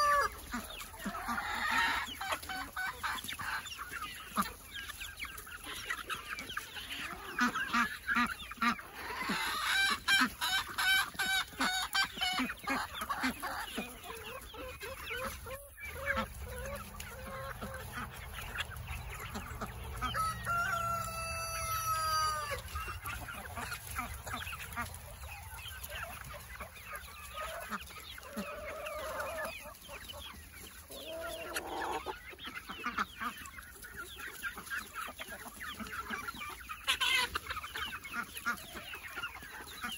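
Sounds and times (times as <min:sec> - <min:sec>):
long drawn-out chicken call: 0:00.0 - 0:03.0, 0:08.6 - 0:14.2, 0:19.4 - 0:23.2
chickens clucking: 0:00.0 - 0:39.9.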